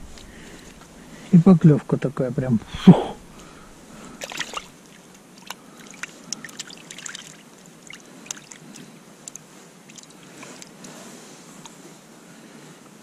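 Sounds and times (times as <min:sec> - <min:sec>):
water drips and small splashes: 0:03.3 - 0:11.0.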